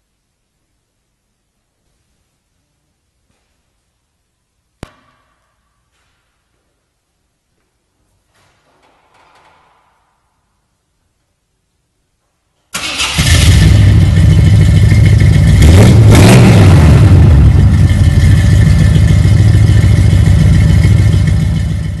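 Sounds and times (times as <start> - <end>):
engine idling and revving: 12.8 - 22.0.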